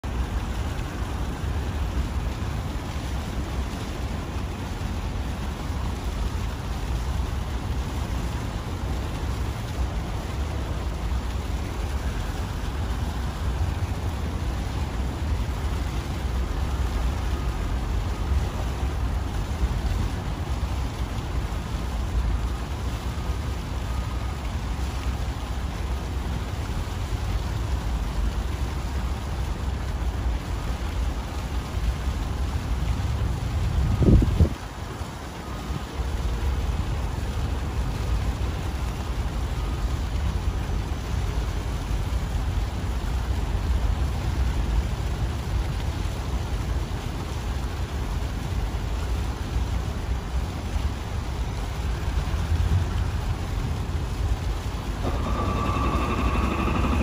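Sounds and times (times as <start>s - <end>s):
low fluctuating rumble: 51.5s - 57.0s
rushing hiss: 51.7s - 57.0s.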